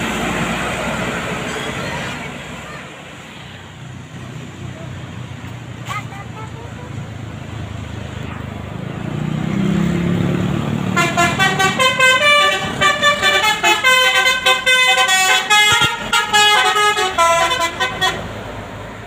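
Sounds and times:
bus engine passing: 0:00.0 - 0:19.0
multi-trumpet bus horn melody: 0:10.9 - 0:18.4.

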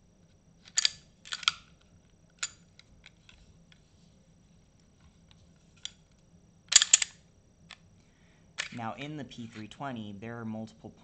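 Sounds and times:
pistol metallic clicks: 0:06.7 - 0:07.2.

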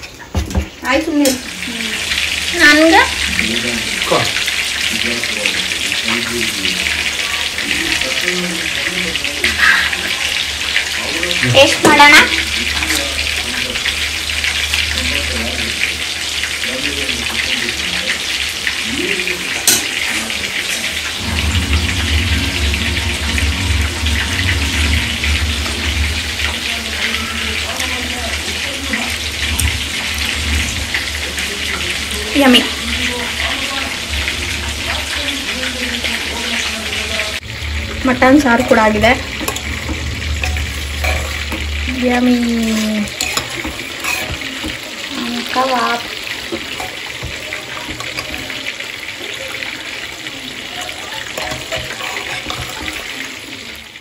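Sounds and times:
food sizzling in hot oil: 0:00.0 - 0:54.0
low hum: 0:21.1 - 0:44.0.

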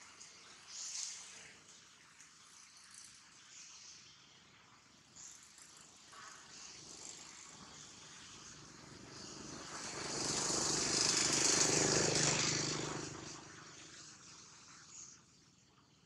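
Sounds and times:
vehicle passing by: 0:08.4 - 0:14.0.

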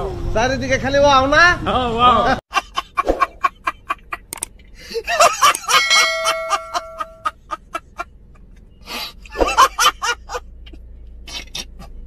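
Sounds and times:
man laughing hard: 0:02.5 - 0:08.1, 0:09.4 - 0:10.4
steady held tone: 0:05.5 - 0:07.3.

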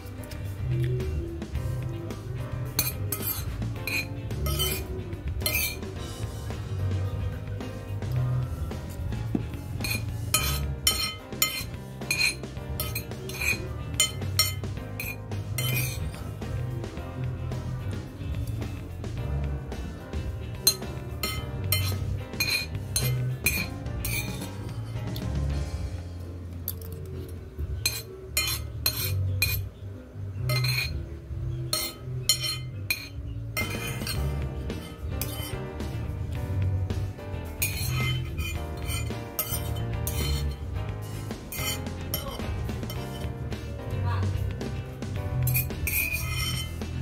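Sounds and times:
metal spoon clinking on ceramic bowl: 0:02.8 - 0:05.8, 0:09.8 - 0:16.2, 0:20.7 - 0:24.5, 0:27.8 - 0:29.7, 0:30.5 - 0:31.0, 0:31.7 - 0:34.2, 0:34.8 - 0:35.5, 0:37.6 - 0:40.6, 0:45.5 - 0:46.8.

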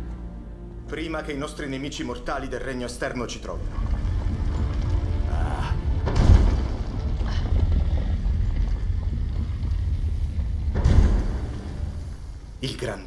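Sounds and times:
deep low rumble: 0:03.5 - 0:12.6.

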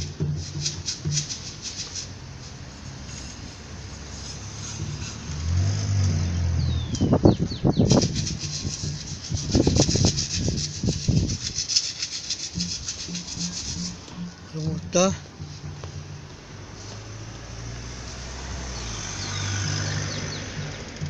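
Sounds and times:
distant percussion rattle: 0:00.0 - 0:21.0
vehicle passing close by: 0:02.2 - 0:21.0.

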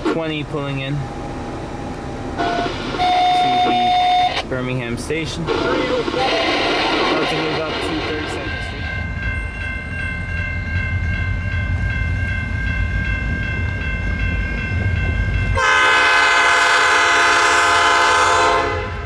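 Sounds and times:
diesel locomotive rumbling: 0:00.0 - 0:19.0
locomotive horn blast: 0:02.4 - 0:04.4, 0:15.5 - 0:19.0.

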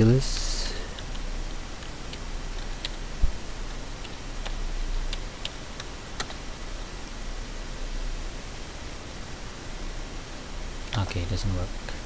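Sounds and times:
low hum and hiss: 0:00.0 - 0:12.0
keyboard keystrokes: 0:04.0 - 0:06.4.

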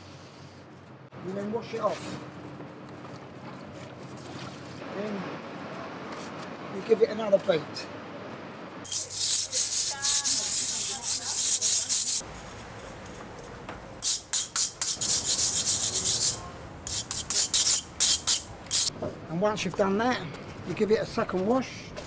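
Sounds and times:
trowel scraping tiles: 0:08.9 - 0:13.0.

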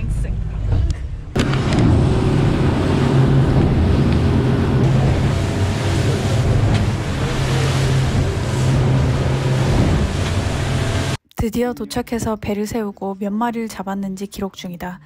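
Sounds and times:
water rushing along hull: 0:00.0 - 0:11.2
wind buffeting microphone: 0:00.7 - 0:11.2
outboard motors running: 0:01.3 - 0:11.2.

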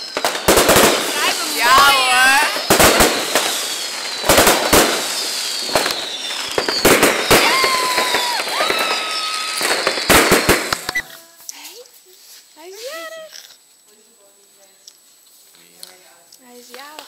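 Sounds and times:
firework bangs: 0:00.0 - 0:11.0
firework whistles: 0:00.0 - 0:11.2
firecrackers crackling: 0:00.0 - 0:13.2.

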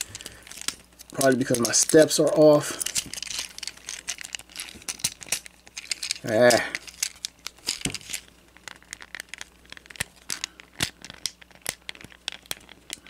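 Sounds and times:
plastic toy parts clicking: 0:02.8 - 0:13.0.

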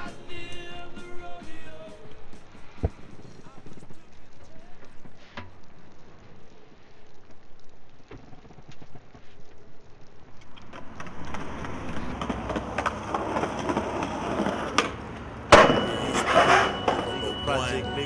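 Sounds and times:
skateboard wheels rolling on concrete: 0:00.0 - 0:18.0
skateboard clacking: 0:10.4 - 0:17.4.

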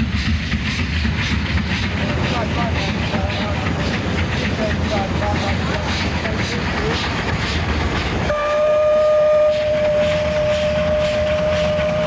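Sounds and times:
train running with rhythmic beat: 0:00.0 - 0:12.0
locomotive whistle long note: 0:08.3 - 0:12.0.

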